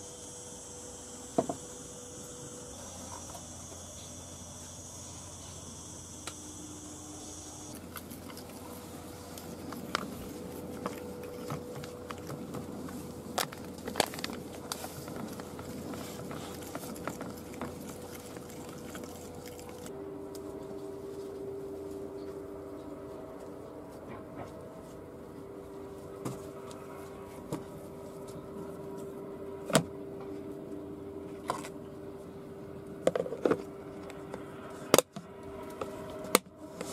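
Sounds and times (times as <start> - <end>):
insects buzzing: 0.0 - 19.9.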